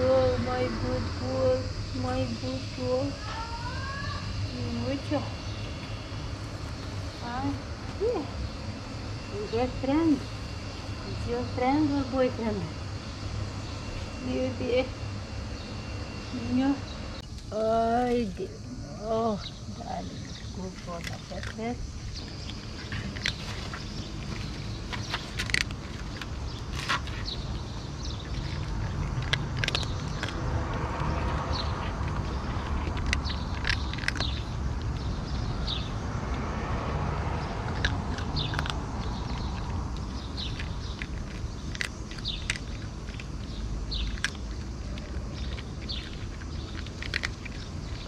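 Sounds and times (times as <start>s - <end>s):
steady low rumble: 0.0s - 48.0s
bird chirping: 1.4s - 36.0s, 37.3s - 48.0s
cat crunching dry kibble: 20.2s - 35.7s, 37.5s - 48.0s.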